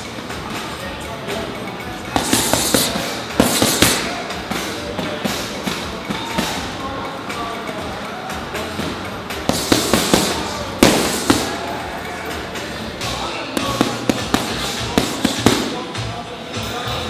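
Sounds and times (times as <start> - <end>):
boxing gloves smacking mitts: 2.2 - 4.1, 9.5 - 11.6, 13.6 - 15.8.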